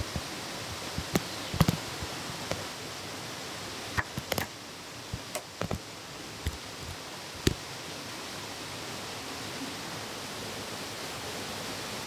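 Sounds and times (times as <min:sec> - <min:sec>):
steady rushing noise: 0:00.0 - 0:09.3
bamboo poles knocking: 0:00.9 - 0:02.6, 0:04.0 - 0:04.5.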